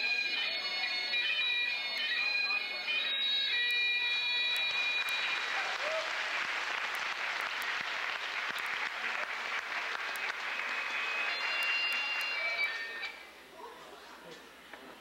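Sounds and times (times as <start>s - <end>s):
bagpipe music: 0.0s - 5.7s, 10.1s - 13.2s
audience applauding: 4.1s - 13.1s.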